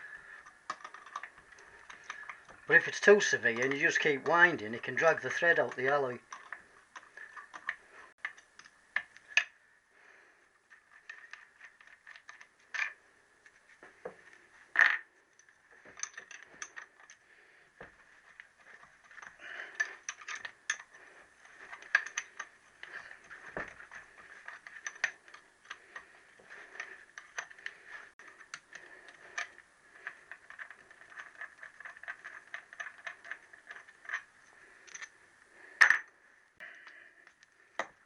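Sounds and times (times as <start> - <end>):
hand tools clicking on metal: 18.4 - 35.1.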